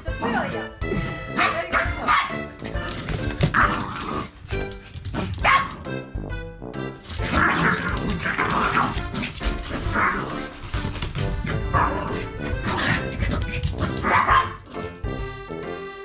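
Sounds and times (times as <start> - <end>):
background music: 0.0 - 16.0
small dogs barking: 1.3 - 2.5, 5.2 - 5.8, 7.3 - 10.6, 11.5 - 14.8.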